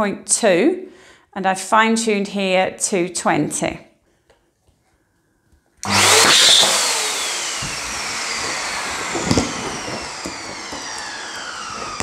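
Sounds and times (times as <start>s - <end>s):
balloon inflator motor winding down: 5.8s - 12.0s.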